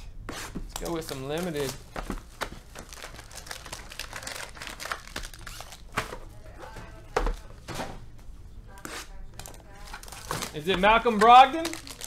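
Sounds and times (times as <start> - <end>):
plastic wrapping crinkling and tearing: 0.8 - 1.8, 2.6 - 6.0, 9.4 - 12.0.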